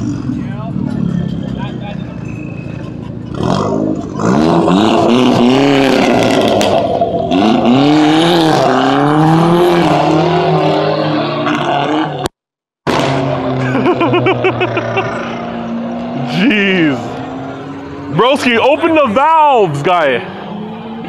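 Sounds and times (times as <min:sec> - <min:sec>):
car engine revving hard: 0:03.3 - 0:12.3, 0:12.9 - 0:18.8.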